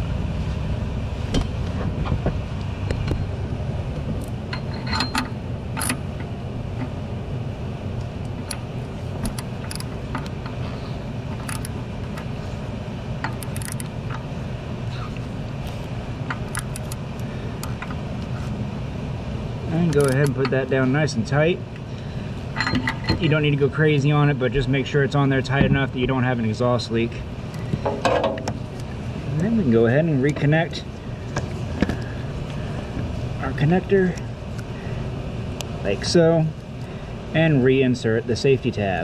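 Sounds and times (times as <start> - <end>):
steady low rumble: 0.0 - 39.0
metallic clicks of hand tools: 19.9 - 20.4.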